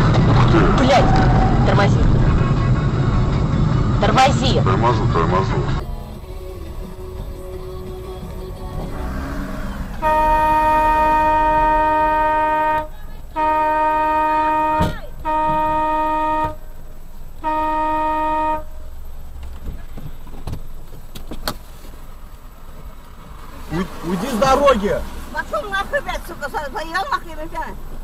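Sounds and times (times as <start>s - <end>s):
car horn blasts: 2.1s - 3.2s, 7.6s - 18.9s.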